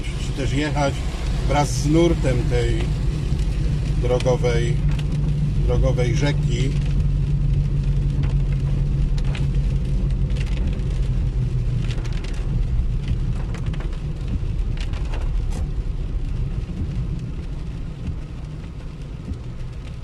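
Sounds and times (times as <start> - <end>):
rain on a car: 0.0 - 20.0
tyres rumbling through water: 0.0 - 20.0
windscreen wipers sweeping: 0.0 - 20.0.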